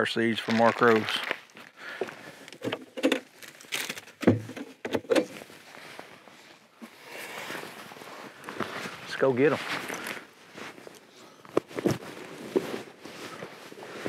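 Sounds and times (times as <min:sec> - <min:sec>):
life jacket fabric rustling: 0:05.4 - 0:14.0.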